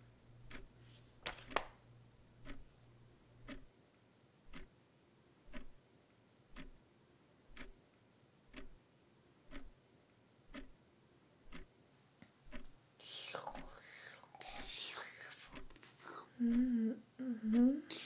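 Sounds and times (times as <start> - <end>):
wall clock ticking: 0.4 - 2.7, 3.4 - 3.8, 4.4 - 4.8, 5.4 - 6.9, 7.5 - 18.0.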